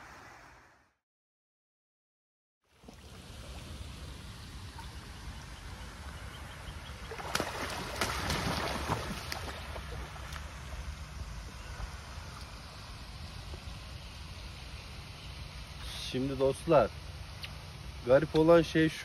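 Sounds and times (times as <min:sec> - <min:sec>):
water lapping: 0:05.8 - 0:10.9
waterfowl splashing and wing-flapping: 0:06.9 - 0:10.9.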